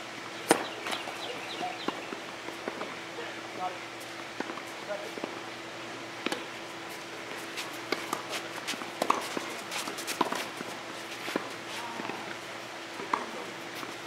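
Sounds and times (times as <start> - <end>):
tennis rackets striking ball: 6.2 - 6.5, 7.8 - 10.7, 13.0 - 13.4
shoes scuffing on clay court: 6.9 - 12.2.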